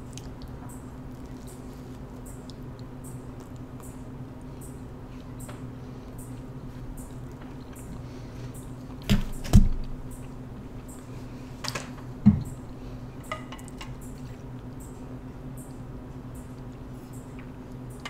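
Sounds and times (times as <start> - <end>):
chewing mouth noises: 0.0 - 5.4.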